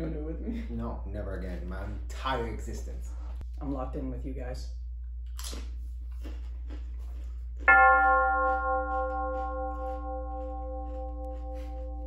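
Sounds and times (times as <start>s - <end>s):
struck bell ringing: 7.7s - 10.8s.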